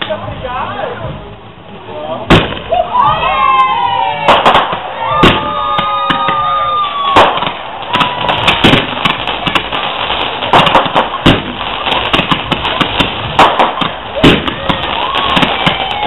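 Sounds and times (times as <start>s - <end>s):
fireworks bangs and crackles: 2.2s - 16.0s
whistling firework shell: 4.2s - 9.7s, 10.4s - 16.0s.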